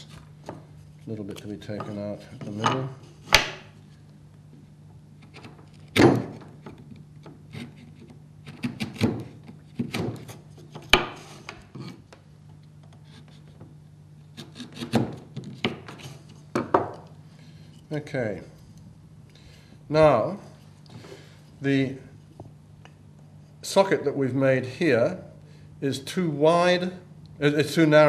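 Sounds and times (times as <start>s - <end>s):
chisel scraping wood: 7.5s - 12.1s, 14.3s - 16.4s.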